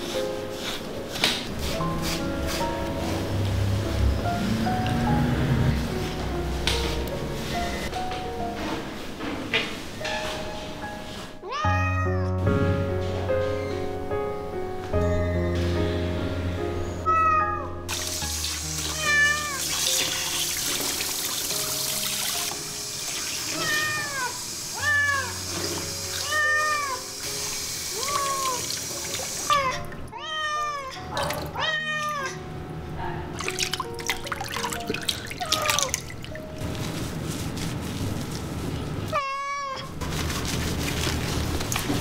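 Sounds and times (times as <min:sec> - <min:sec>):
cat meowing: 0:11.4 - 0:12.4, 0:17.1 - 0:17.8, 0:18.9 - 0:20.4, 0:23.5 - 0:25.4, 0:26.2 - 0:27.0, 0:27.9 - 0:28.7, 0:29.5 - 0:32.4, 0:39.1 - 0:40.0
water running from hand shower: 0:17.9 - 0:30.0, 0:33.4 - 0:38.5, 0:40.0 - 0:42.0.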